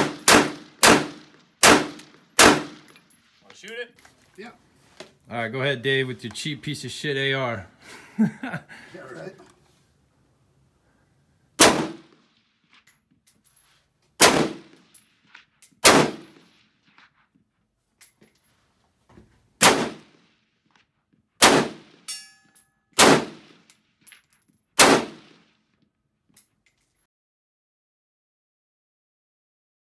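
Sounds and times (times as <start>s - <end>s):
rifle shots: 0.0s - 3.0s, 11.6s - 12.4s, 14.2s - 14.9s, 15.8s - 16.6s, 19.6s - 20.3s, 21.4s - 22.1s, 23.0s - 23.6s, 24.8s - 25.5s.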